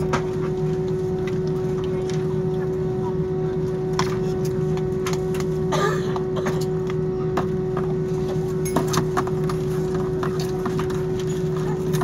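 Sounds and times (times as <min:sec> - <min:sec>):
jet engine hum: 0:00.0 - 0:12.0.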